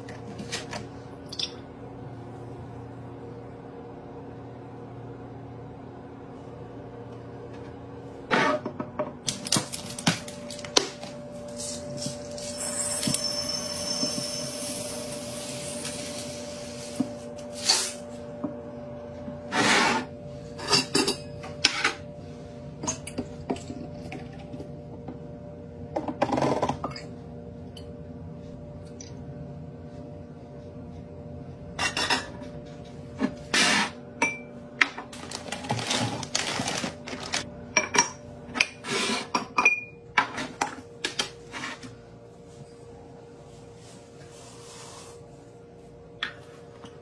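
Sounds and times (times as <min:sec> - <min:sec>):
steady low hum: 0:00.0 - 0:47.0
beads pouring into glass: 0:12.3 - 0:16.0.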